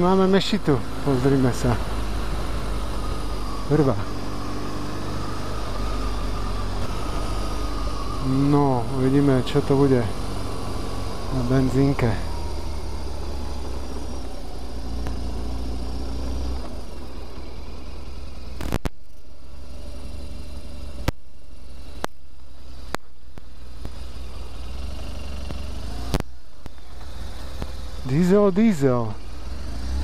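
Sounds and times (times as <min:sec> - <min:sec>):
motorcycle engine idling: 0:00.0 - 0:29.8
sharp clicks: 0:18.5 - 0:19.3.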